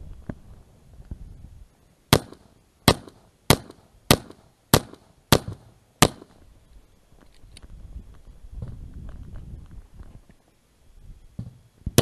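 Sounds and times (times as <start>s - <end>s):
pistol shots with echo: 2.1s - 6.4s.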